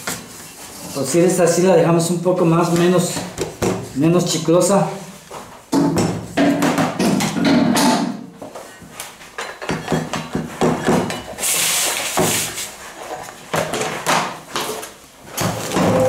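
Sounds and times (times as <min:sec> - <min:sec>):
metal scraping: 0:15.4 - 0:16.0.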